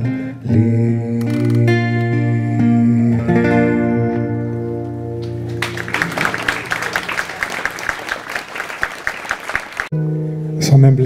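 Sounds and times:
audience applauding: 5.4s - 9.9s.

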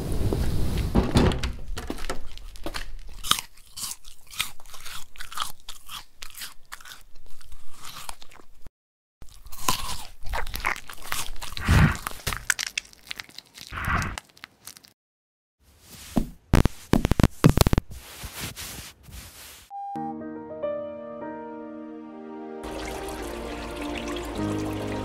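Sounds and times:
crunchy toast being chewed: 2.0s - 15.0s.

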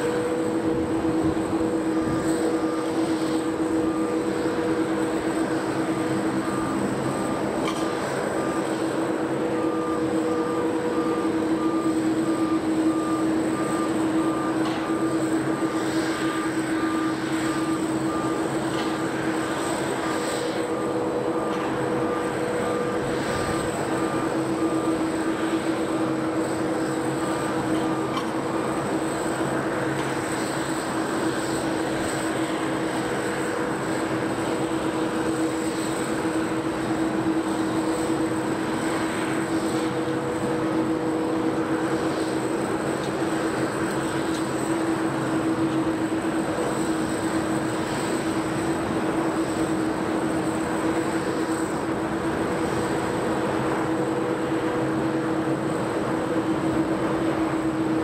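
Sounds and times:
faint warning beeps: 0.0s - 57.9s
high whine from ground equipment: 0.0s - 58.0s
machinery hum: 0.0s - 58.0s.

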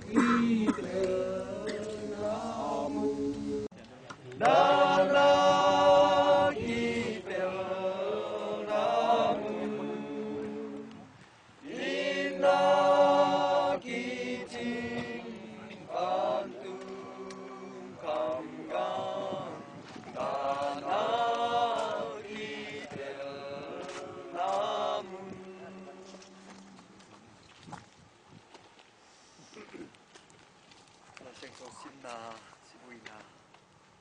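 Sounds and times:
group singing a hymn: 0.0s - 3.7s, 4.4s - 26.9s.

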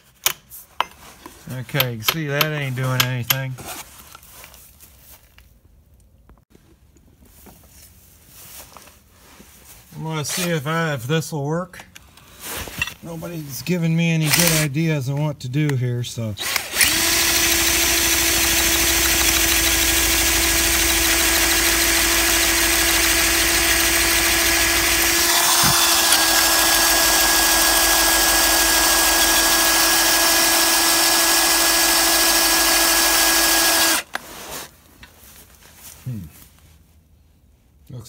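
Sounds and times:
cordless drill boring into steel: 16.4s - 34.1s.

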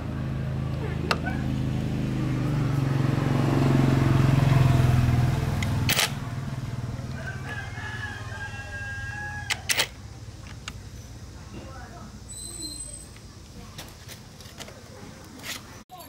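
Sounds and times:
small motorcycle engine running: 0.0s - 12.2s
rooster crowing: 6.8s - 10.0s.

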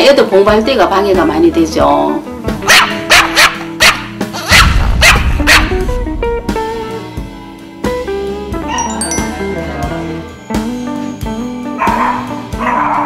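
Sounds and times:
background music with plucked notes: 0.0s - 13.0s
dog barking loudly: 2.6s - 5.8s, 11.8s - 13.0s.

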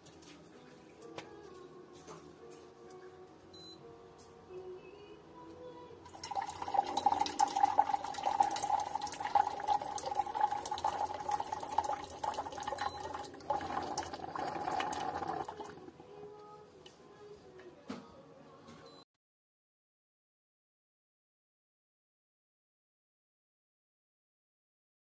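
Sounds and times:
water pouring into a cup: 6.1s - 15.9s.

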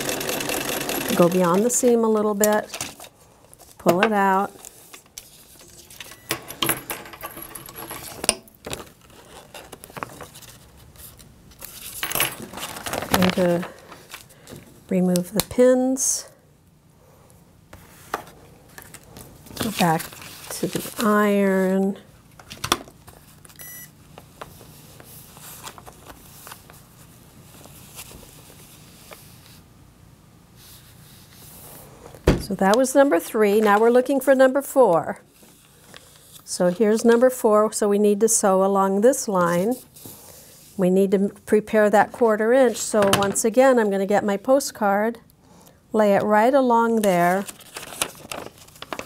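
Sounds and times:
paper and fabric rustling: 8.6s - 14.5s, 17.8s - 21.7s, 24.2s - 29.6s, 46.9s - 49.0s.

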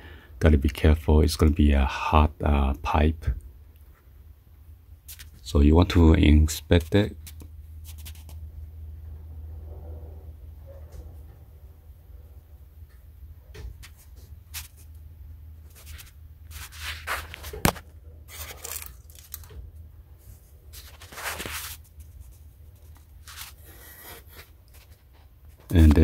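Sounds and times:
low steady hum: 0.0s - 26.0s
rustling and scraping from handling: 13.6s - 26.0s.

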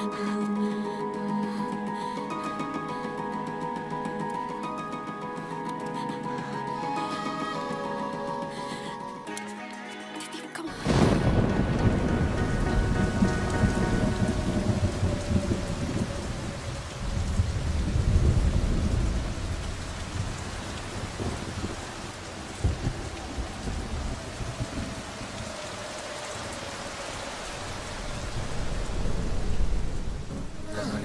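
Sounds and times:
heavy rain: 0.0s - 31.0s
rolling thunder: 10.8s - 30.7s.

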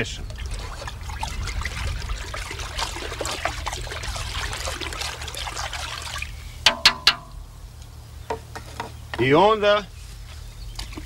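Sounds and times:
liquid sloshing in metal pot: 0.0s - 7.5s
stick knocking on pot: 6.7s - 7.4s.

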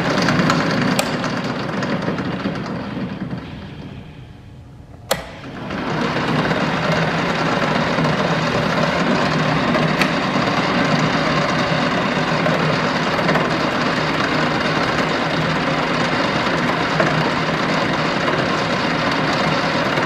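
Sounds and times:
lathe motor running: 0.0s - 20.0s.

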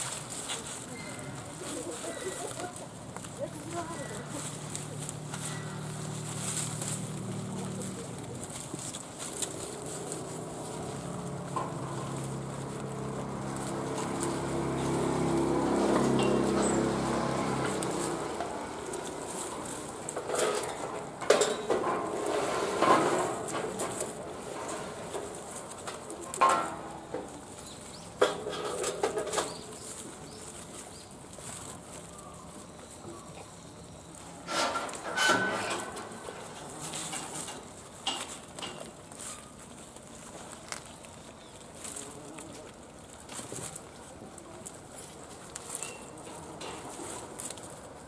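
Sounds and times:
deer rustling leaves and twigs: 0.0s - 48.0s
motor engine running: 3.7s - 20.9s.

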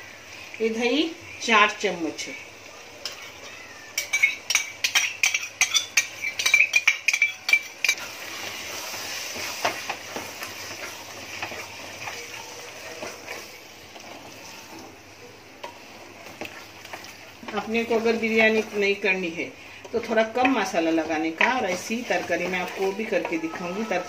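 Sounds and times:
spatula clinking on metal pot: 4.0s - 8.1s
spatula stirring thick mixture: 4.5s - 15.0s, 15.6s - 24.0s.

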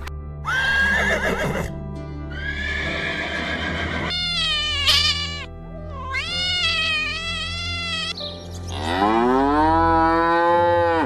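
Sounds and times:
background music: 0.0s - 11.0s
cat meowing: 4.1s - 8.2s.

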